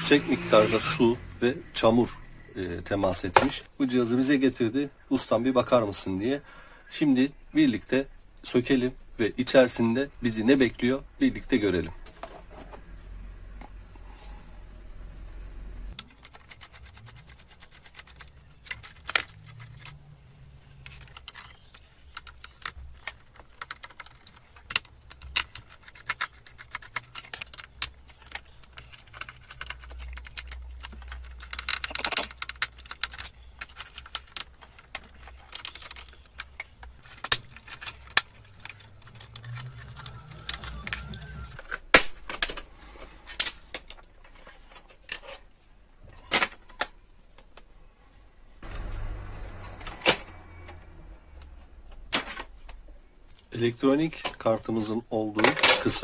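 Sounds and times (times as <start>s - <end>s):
plastic and metal parts clicking: 16.0s - 45.5s.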